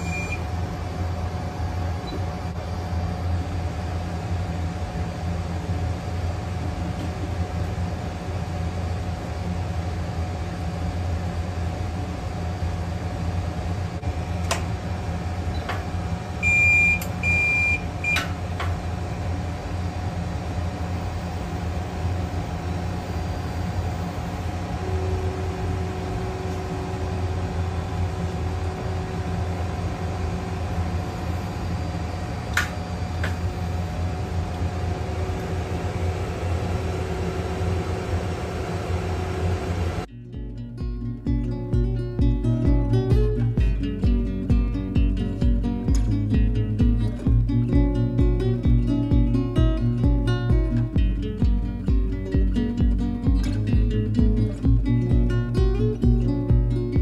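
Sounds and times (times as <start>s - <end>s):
short beeps: 0.0s - 0.4s, 16.4s - 18.2s
fan hum: 0.0s - 57.0s.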